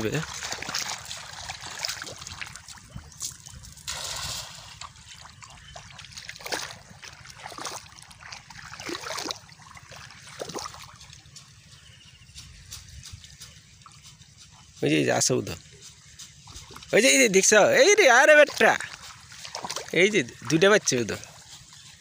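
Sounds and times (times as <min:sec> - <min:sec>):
water splashing: 0:00.0 - 0:11.2, 0:16.5 - 0:21.8.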